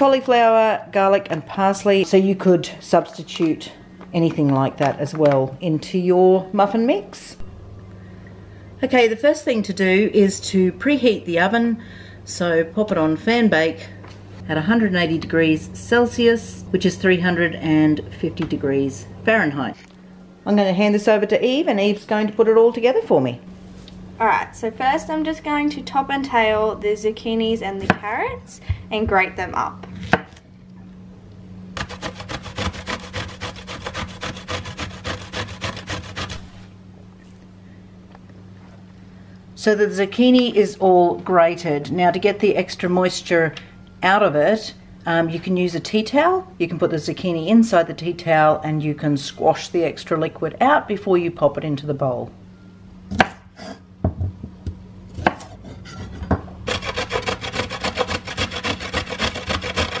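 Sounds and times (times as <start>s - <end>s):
knife chopping on wooden board: 31.8s - 36.5s, 53.1s - 53.4s, 55.1s - 60.0s
grating on metal grater: 31.8s - 36.6s, 56.7s - 60.0s.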